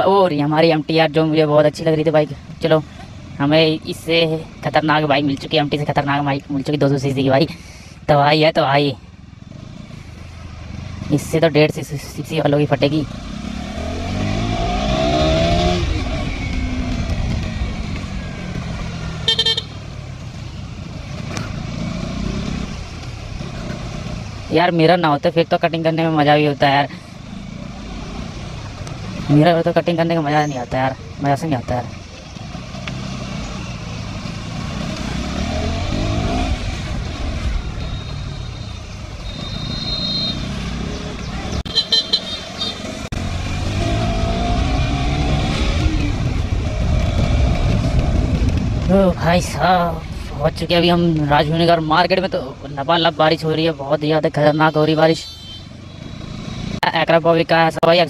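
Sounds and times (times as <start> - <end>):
motorcycle engine accelerating: 9.3 - 11.7, 12.4 - 25.0, 27.0 - 30.2, 31.0 - 52.6, 55.7 - 57.0
short horn beep: 19.2 - 19.8, 37.8 - 40.6, 41.7 - 42.8, 55.2 - 55.7.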